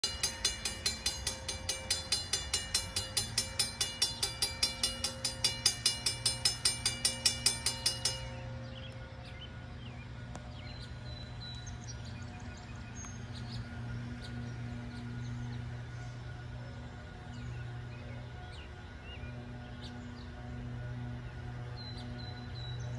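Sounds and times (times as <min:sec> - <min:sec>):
railroad crossing bell ringing: 0:00.0 - 0:12.4
low steady hum: 0:00.0 - 0:22.9.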